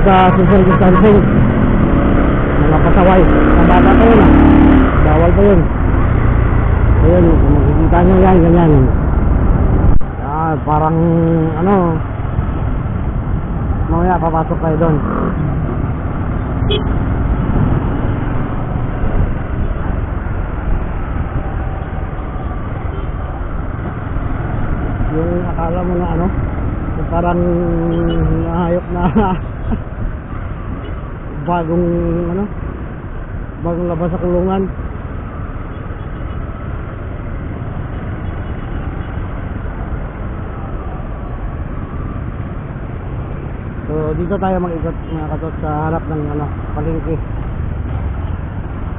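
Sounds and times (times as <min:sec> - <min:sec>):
wind rush on microphone: 0:00.0 - 0:14.2, 0:15.0 - 0:31.3.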